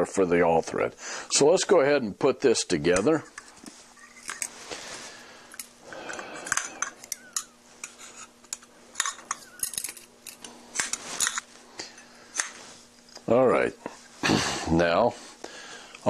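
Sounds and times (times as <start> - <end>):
metal rods clinking and rattling: 9.0 - 11.4.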